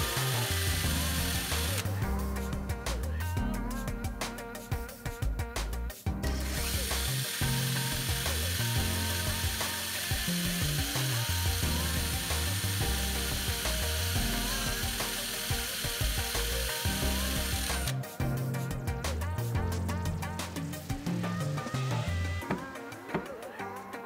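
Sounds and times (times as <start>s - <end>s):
drill boring into steel: 0.0s - 1.9s, 6.2s - 18.0s
background music: 0.0s - 24.0s.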